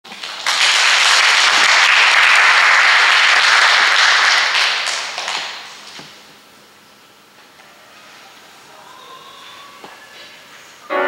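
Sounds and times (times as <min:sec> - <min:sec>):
audience applauding: 0:00.1 - 0:05.9.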